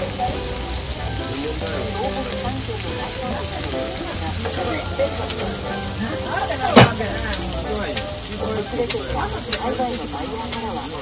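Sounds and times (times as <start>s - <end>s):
food sizzling on a griddle: 0.0s - 11.0s
loud sharp knock: 6.8s - 7.0s.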